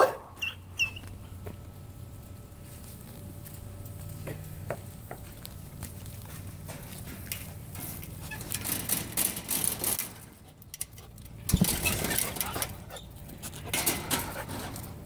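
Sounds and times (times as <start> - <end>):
chain-link fence rattling: 6.8 - 15.0.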